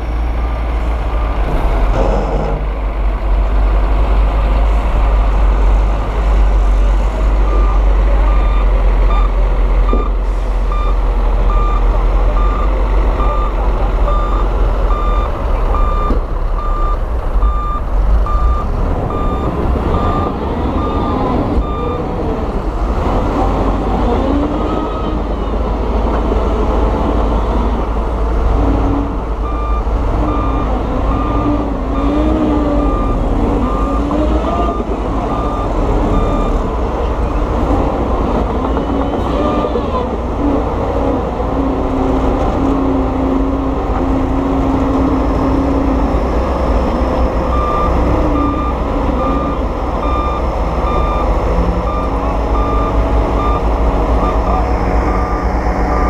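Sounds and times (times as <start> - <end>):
heavy diesel machinery rumbling: 0.0 - 56.0
reversing alarm beeping: 7.4 - 22.0, 29.4 - 36.6, 45.3 - 56.0.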